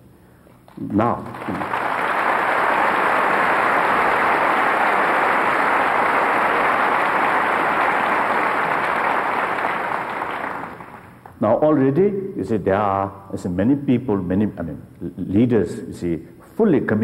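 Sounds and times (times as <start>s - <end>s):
large audience applauding: 0.7s - 11.3s.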